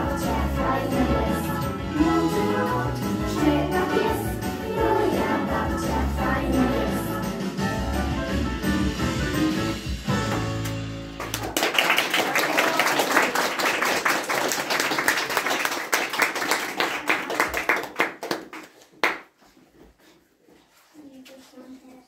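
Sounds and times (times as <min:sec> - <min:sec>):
music: 0:00.0 - 0:11.5
audience applauding: 0:11.2 - 0:19.3.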